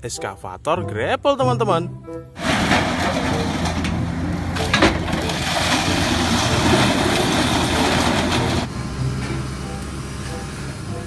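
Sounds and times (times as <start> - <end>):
scrap metal clatter and crunch: 2.4 - 8.7
sharp metal crash: 2.4 - 8.7
diesel engine running: 2.4 - 11.0.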